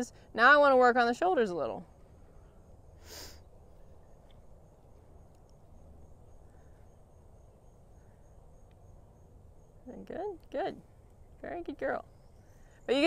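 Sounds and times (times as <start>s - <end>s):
cricket chirping: 0.0s - 13.0s.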